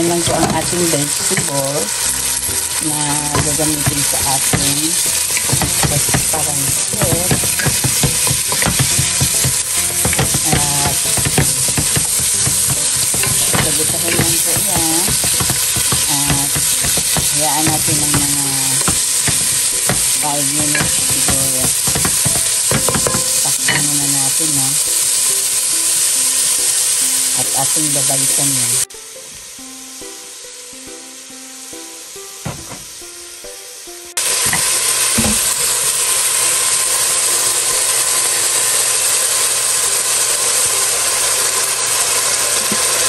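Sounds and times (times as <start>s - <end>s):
vegetables sizzling in a pot: 0.0s - 43.0s
wooden spatula scraping a pan: 2.9s - 23.9s.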